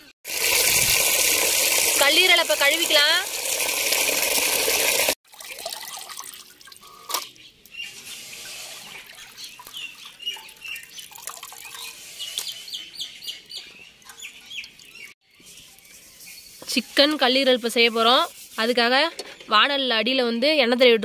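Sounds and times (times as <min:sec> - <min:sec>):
small birds chirping: 0:07.2 - 0:18.5.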